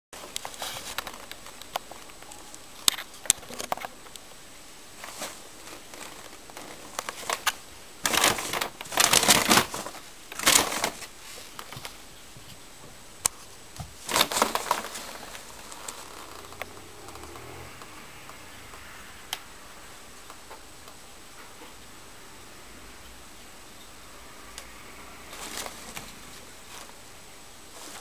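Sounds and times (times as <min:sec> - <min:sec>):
plastic bag crinkling: 0:05.0 - 0:11.8, 0:14.0 - 0:17.4, 0:25.3 - 0:27.0.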